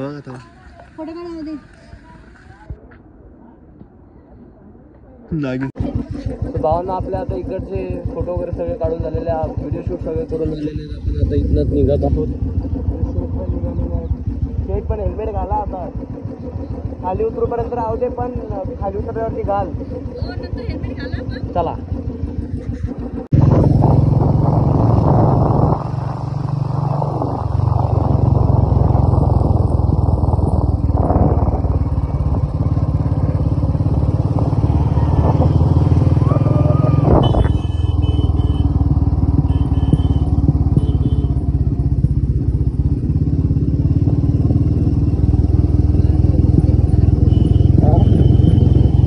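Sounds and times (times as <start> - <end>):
motorcycle engine rumbling: 0.0 - 49.0.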